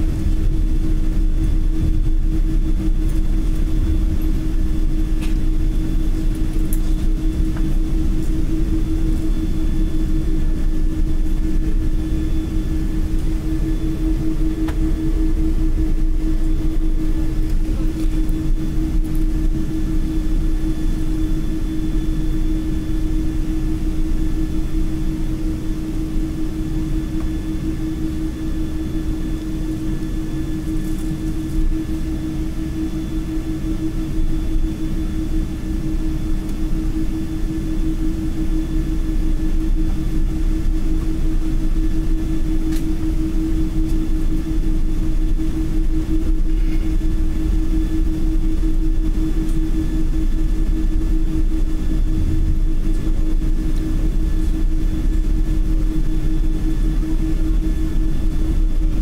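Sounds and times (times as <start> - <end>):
low rumble: 0.0 - 20.2, 38.9 - 59.0
jet engine hum: 0.0 - 59.0.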